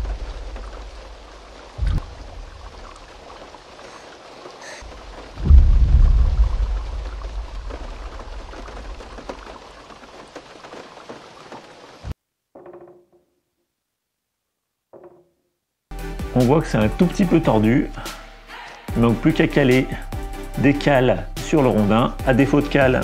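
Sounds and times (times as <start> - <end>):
deep booming thuds: 0.0 - 3.3, 4.9 - 9.5
steady rain: 0.0 - 12.2.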